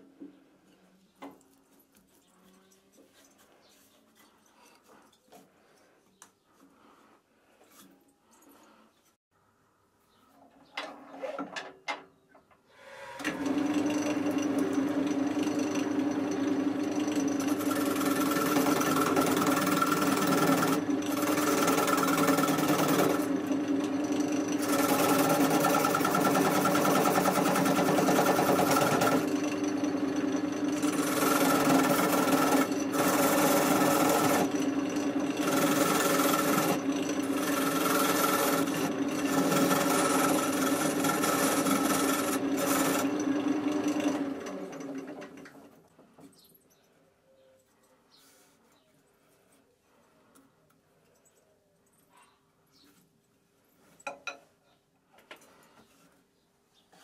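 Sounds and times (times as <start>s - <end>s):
turning tool scraping wood: 12.9s - 45.4s
wood lathe motor hum: 12.9s - 45.7s.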